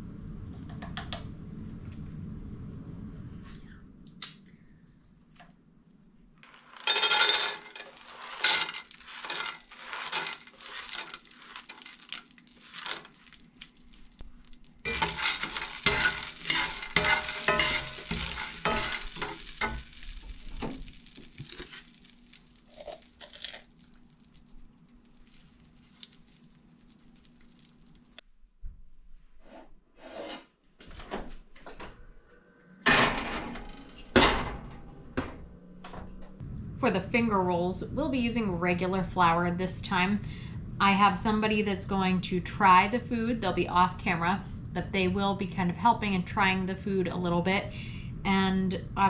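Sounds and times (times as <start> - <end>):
low hum: 0.0 - 12.5, 13.1 - 29.2, 31.5 - 49.0
metal spatula scraping skillet: 6.4 - 13.1, 14.9 - 20.1
peanuts sizzling in butter: 6.4 - 28.2.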